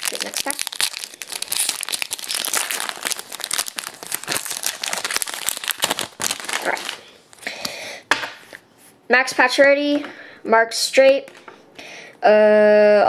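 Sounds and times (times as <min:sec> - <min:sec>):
plastic wrapper crinkling: 0:00.0 - 0:07.5.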